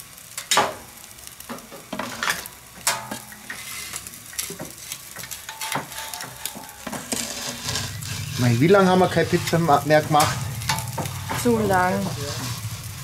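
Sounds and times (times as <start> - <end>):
sizzling hiss: 0.0 - 13.0
metal tongs clacking on pizza stone: 5.1 - 7.2.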